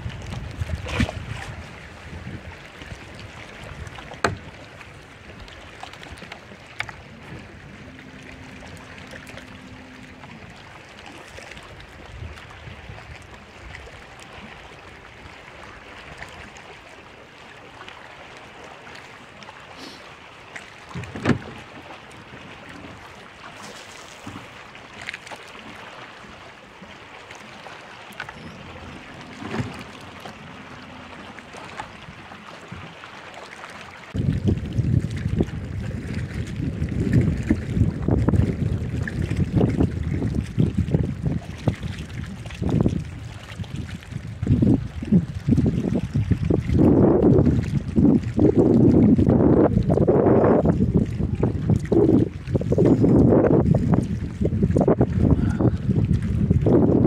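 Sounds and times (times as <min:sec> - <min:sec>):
wind and water noise: 0:00.0 - 0:57.0
brief low hum: 0:07.2 - 0:11.2, 0:28.2 - 0:32.4.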